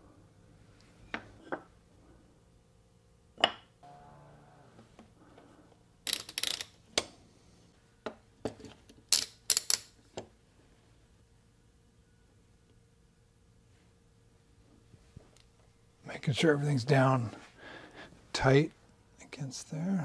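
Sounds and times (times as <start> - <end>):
metal clamps rattling and clicking: 6.1 - 6.8.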